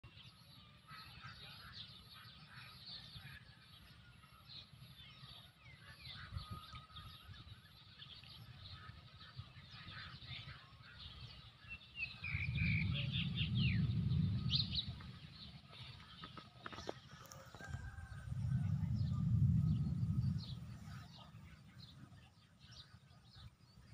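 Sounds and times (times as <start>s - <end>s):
birds chirping: 0.0s - 23.9s
low rumble: 12.0s - 22.3s.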